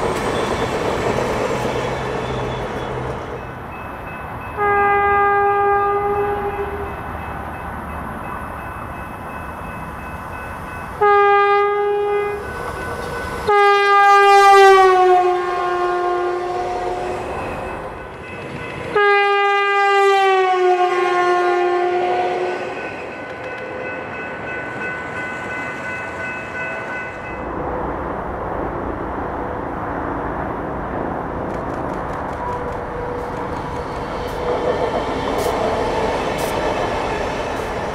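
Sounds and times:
railcar running noise: 0.0s - 37.9s
train horn blasts: 4.6s - 7.0s, 11.0s - 12.5s, 13.4s - 17.5s, 18.9s - 23.9s.

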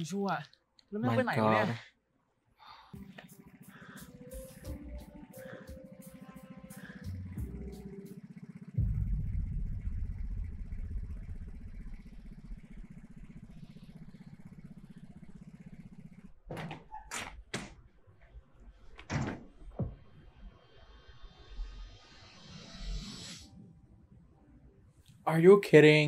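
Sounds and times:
scooter engine rumbling: 3.0s - 21.4s.

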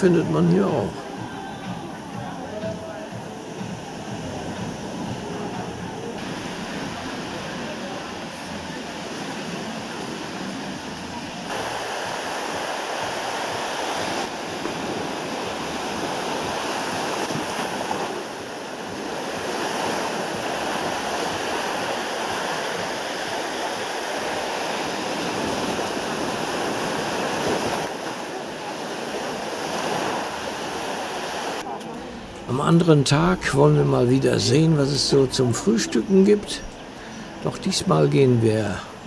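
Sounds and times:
small waves washing onto beach: 1.8s - 32.2s.

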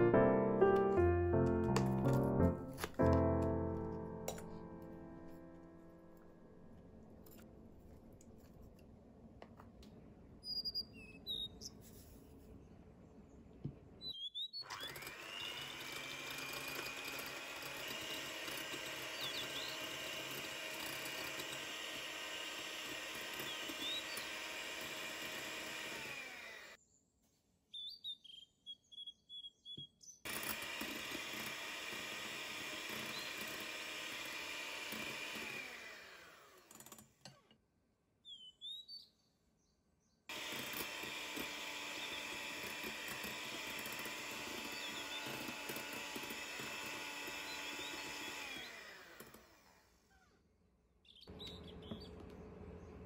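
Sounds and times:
electric hand mixer whirring: 14.6s - 26.8s, 30.3s - 37.0s, 40.3s - 50.3s.

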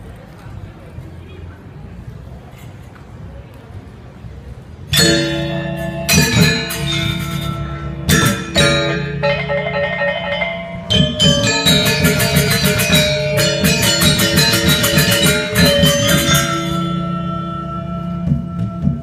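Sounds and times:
metallophones struck with mallets: 4.9s - 19.0s
drum tones: 5.0s - 19.0s
ringing gong: 5.0s - 19.0s.

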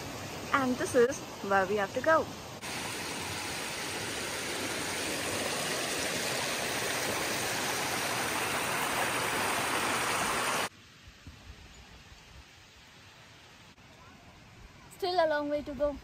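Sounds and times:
stream rushing over rocks: 0.0s - 10.7s.

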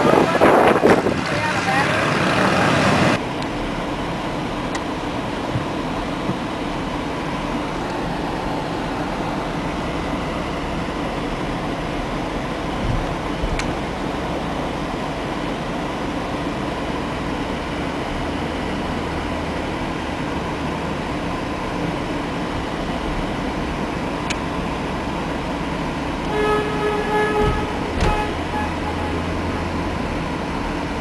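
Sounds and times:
road and engine noise inside car: 0.0s - 31.0s
car horn toots: 26.2s - 29.7s.

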